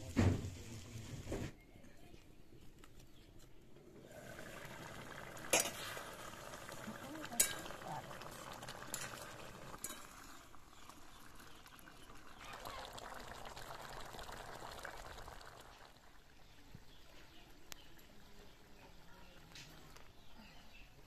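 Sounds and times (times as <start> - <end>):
curry bubbling in a wok: 4.0 - 20.2.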